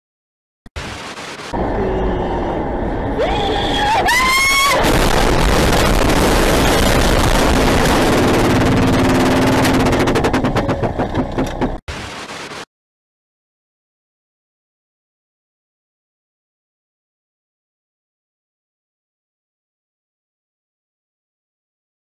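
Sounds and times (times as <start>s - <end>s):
tire squeal: 1.6s - 5.1s
rapid rattling knocks: 7.9s - 11.9s.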